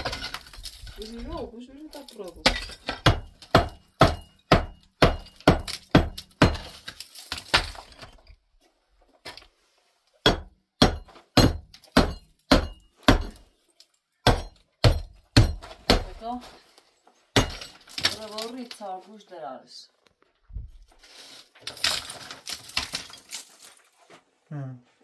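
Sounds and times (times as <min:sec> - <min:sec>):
hammer striking concrete: 0:02.4 - 0:06.8, 0:10.2 - 0:13.4, 0:14.2 - 0:16.3.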